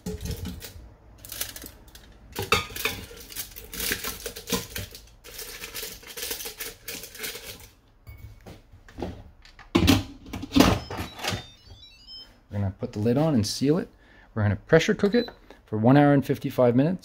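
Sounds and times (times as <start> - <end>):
foil crinkling: 0.6 - 2.0, 2.8 - 7.7.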